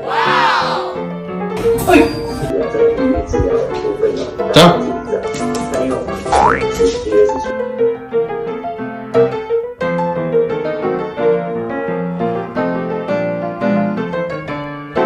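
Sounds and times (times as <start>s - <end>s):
light piano tune: 7.5s - 15.0s.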